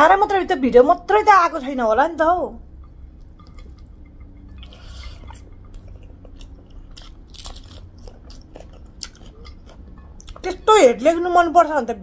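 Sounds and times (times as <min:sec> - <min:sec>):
chewing with crunches: 0:02.7 - 0:10.6.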